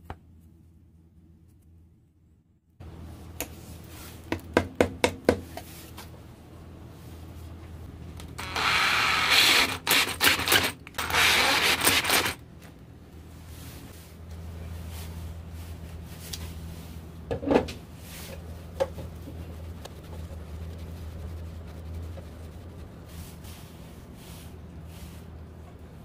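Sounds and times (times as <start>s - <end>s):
power drill driving screws: 8.4s - 12.4s.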